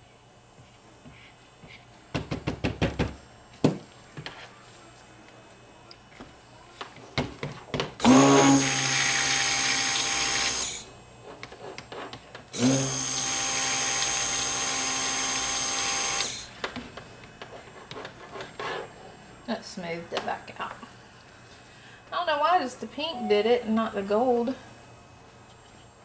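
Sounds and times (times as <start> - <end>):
stick blender running: 8.0 - 10.9, 12.5 - 16.8.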